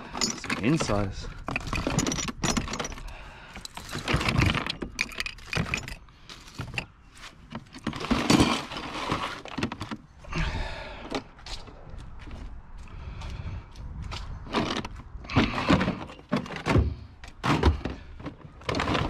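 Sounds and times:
steel springs jangling in a tub: 0.0 - 4.0.

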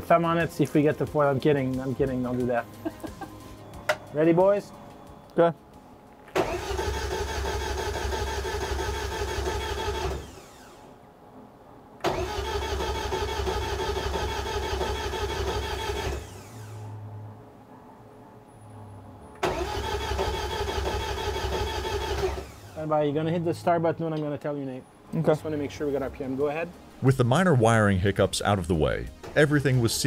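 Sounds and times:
electric fuel pump whining: 6.3 - 11.0, 12.0 - 17.0, 19.4 - 23.0.

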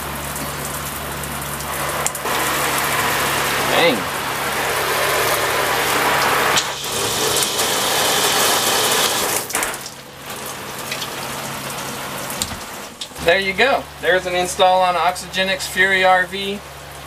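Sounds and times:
shower head spraying water: 1.5 - 13.4.

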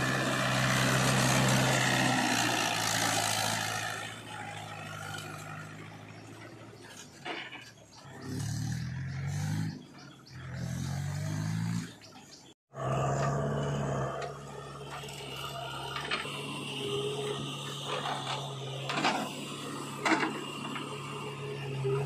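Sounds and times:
soil being dumped: 0.0 - 6.0
tractor diesel engine: 0.0 - 22.0.

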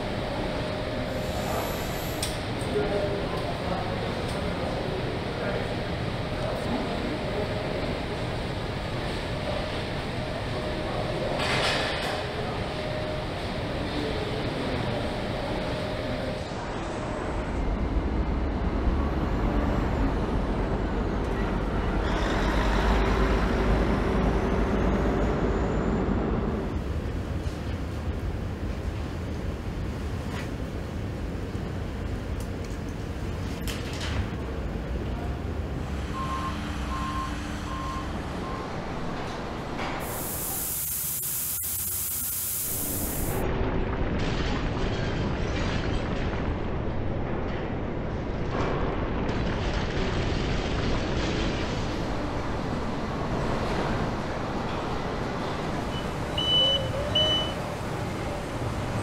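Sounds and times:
furnace burners rumbling: 0.0 - 44.1, 45.4 - 59.0
air hiss: 40.0 - 43.4.

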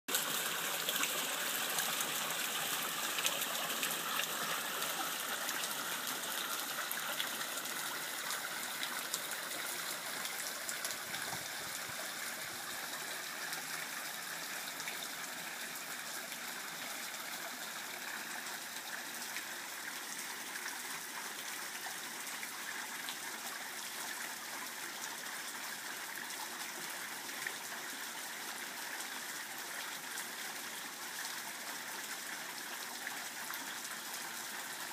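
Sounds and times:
water rushing off waterwheel: 0.1 - 13.3.

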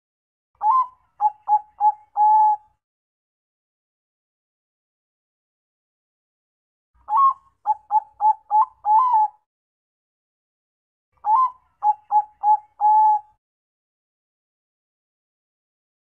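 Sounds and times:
dove cooing: 0.6 - 2.6, 7.1 - 9.4, 11.2 - 13.3.

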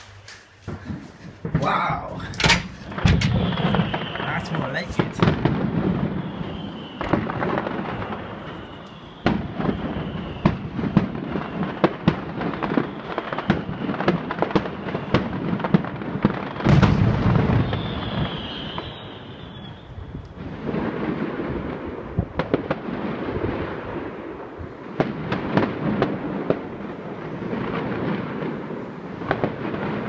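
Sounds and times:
fireworks bangs and crackling: 0.0 - 30.0
loud firework booms: 0.7 - 30.0
high thin firework whistle: 3.3 - 4.7, 5.9 - 12.0, 12.6 - 15.3, 16.4 - 20.2.

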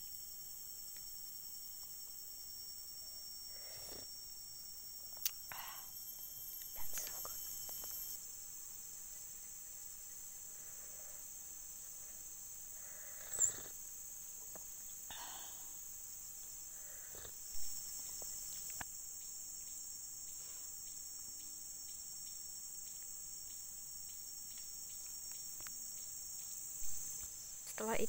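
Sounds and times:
high-pitched insect drone: 0.0 - 28.0.

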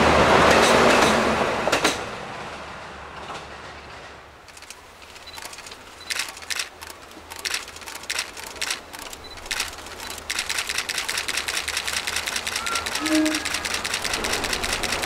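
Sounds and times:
camera shutters clicking: 4.5 - 15.0.

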